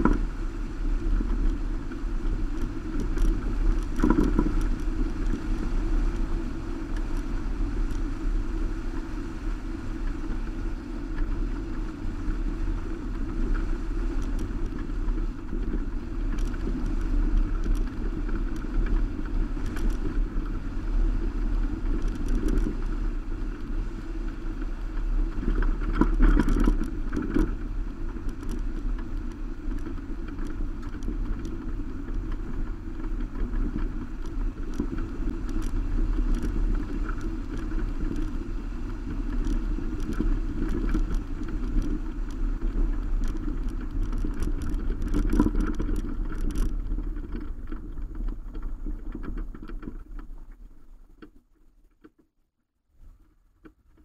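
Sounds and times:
wind on microphone: 0.0 - 51.1
loose stones clicking: 1.1 - 6.3, 13.3 - 20.9, 25.3 - 50.5.

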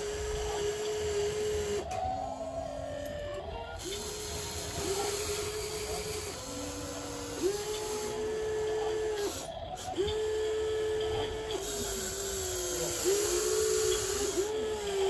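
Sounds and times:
small electric motors whining: 0.0 - 15.0.

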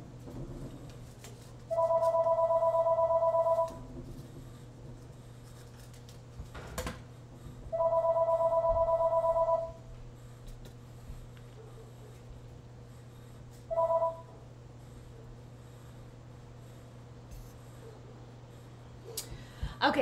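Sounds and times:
telephone warbling ring: 1.7 - 3.8, 7.8 - 9.8, 13.7 - 14.4.

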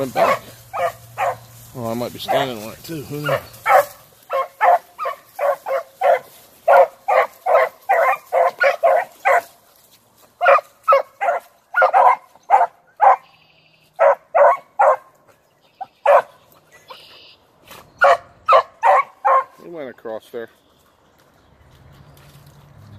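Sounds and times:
dogs barking: 0.0 - 9.6, 10.4 - 17.2, 18.0 - 19.6.

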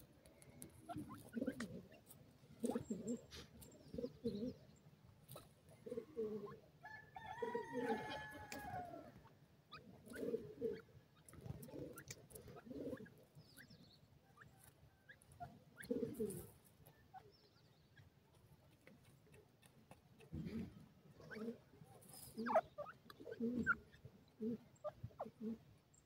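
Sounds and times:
pecking clicks in dry soil: 0.0 - 4.0, 10.0 - 13.8, 14.5 - 23.9
birds clucking: 0.0 - 4.6, 5.3 - 18.1, 18.7 - 25.7.

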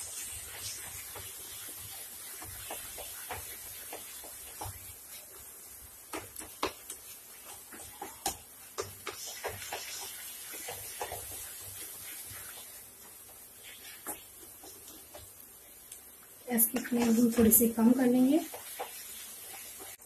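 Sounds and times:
faint steady hiss: 0.0 - 20.0
spatula scraping a pan: 7.4 - 15.2, 18.0 - 20.0.

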